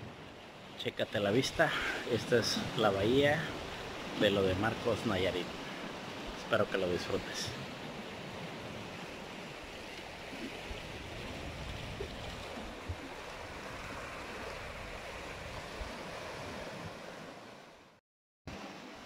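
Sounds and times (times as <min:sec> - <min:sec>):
ocean surf on rocky shore: 0:00.0 - 0:19.0.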